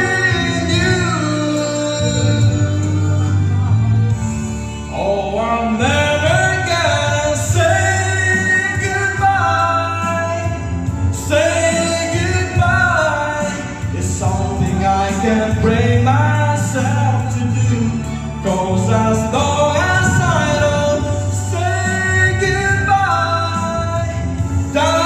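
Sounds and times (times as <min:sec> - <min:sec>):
backing music: 0:00.0 - 0:25.0
man singing into microphone: 0:00.0 - 0:25.0.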